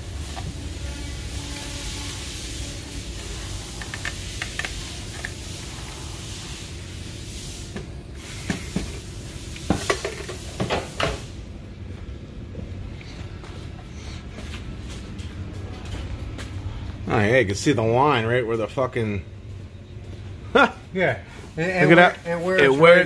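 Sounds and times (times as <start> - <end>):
steady hiss: 0.0 - 11.6.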